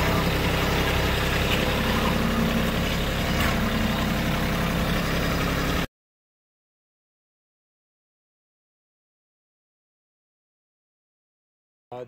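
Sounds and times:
tractor diesel engine running: 0.0s - 5.9s.

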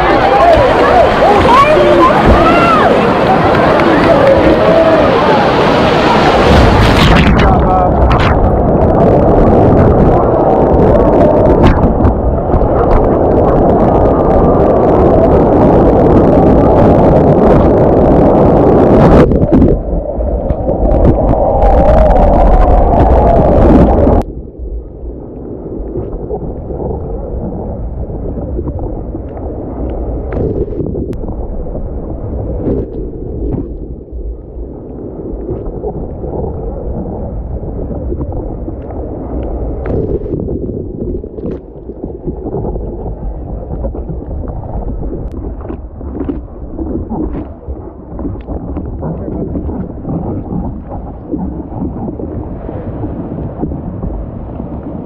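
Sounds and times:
muffled water sound: 0.0s - 55.0s
water rushing: 0.0s - 55.0s
wind noise: 0.0s - 55.0s.

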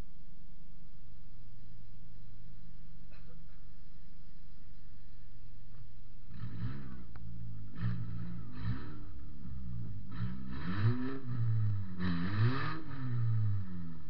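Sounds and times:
car engine revving: 6.2s - 14.0s.

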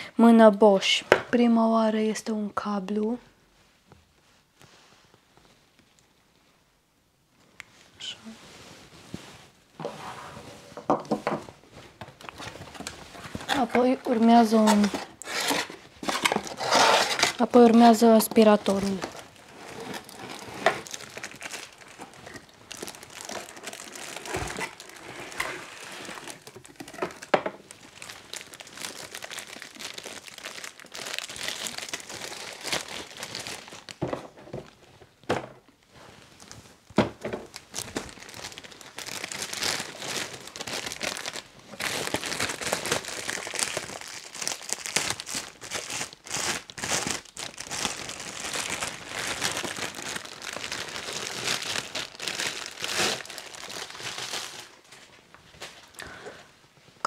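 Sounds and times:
plastic bag crinkling: 12.0s - 34.0s, 36.2s - 55.0s.

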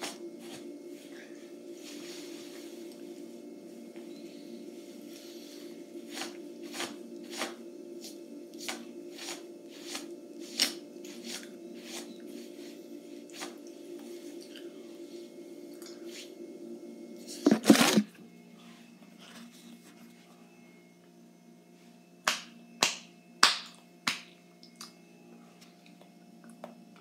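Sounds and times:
steady low hum: 0.0s - 27.0s
phone bumping and scraping: 17.4s - 18.1s.

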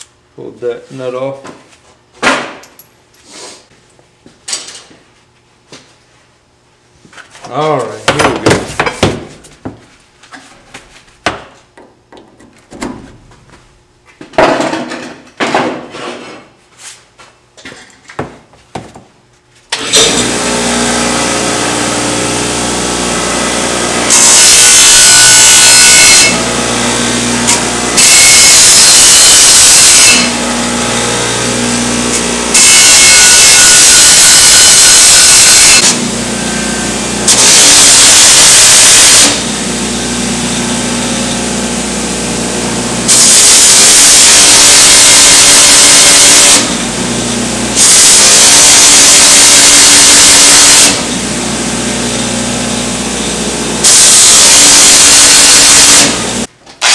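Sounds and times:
bench grinder humming: 35.2s - 38.6s.

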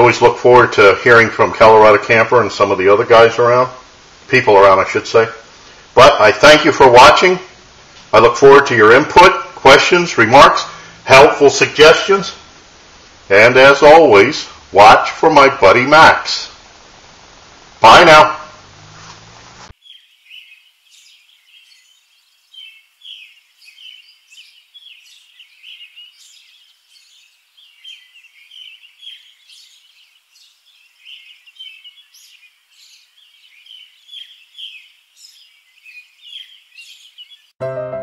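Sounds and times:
small birds chirping: 18.1s - 37.6s
piano music: 37.6s - 38.0s.

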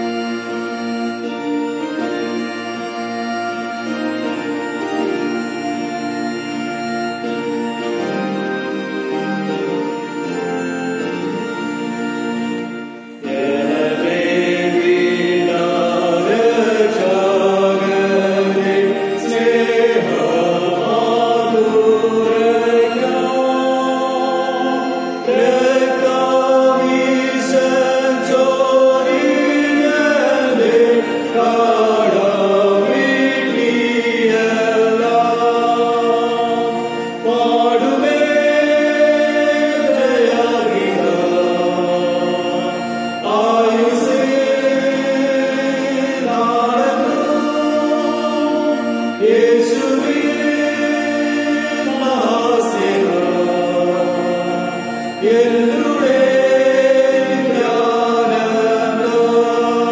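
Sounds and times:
hymn singing: 0.0s - 59.9s
organ chords: 0.0s - 59.9s.

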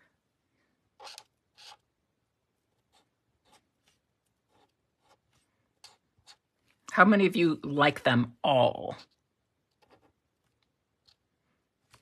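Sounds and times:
marker scratching on cardstock: 1.0s - 1.9s, 2.7s - 6.5s, 9.8s - 10.2s.

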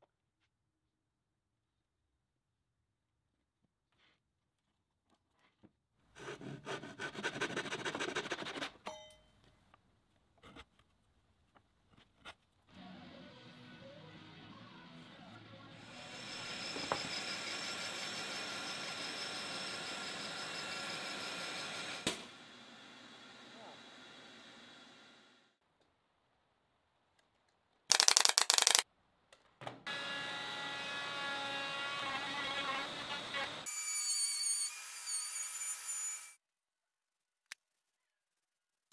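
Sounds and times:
hand tool rasping wood: 6.2s - 8.7s
router table whine: 15.8s - 25.4s, 29.9s - 33.6s
nail gun clicks: 27.9s - 28.8s.

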